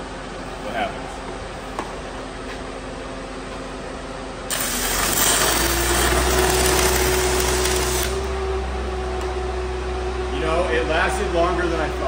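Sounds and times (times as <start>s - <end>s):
welding arc crackling and sizzling: 4.5s - 8.4s
welder engine droning: 4.5s - 12.0s.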